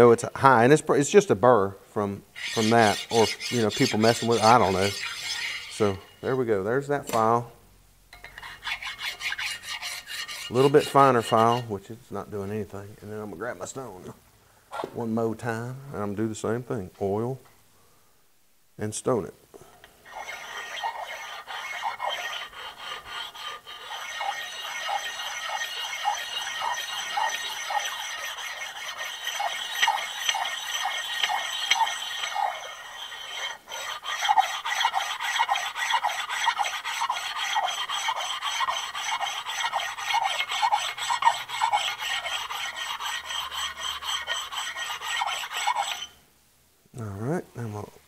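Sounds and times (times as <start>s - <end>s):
sharpening stone rubbing on metal: 2.4s - 6.4s, 8.2s - 11.7s, 20.0s - 46.2s.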